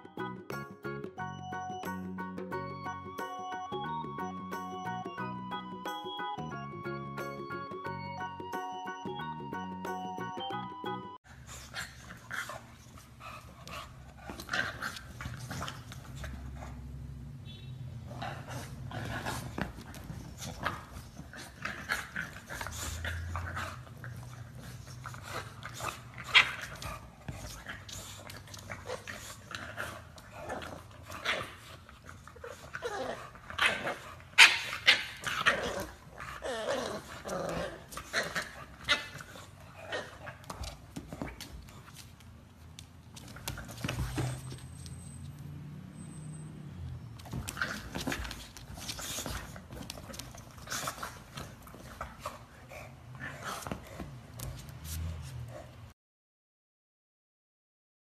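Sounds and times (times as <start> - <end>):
dogs growling: 18.1 - 40.8
dogs yipping and whining: 18.2 - 41.2, 43.2 - 52.4.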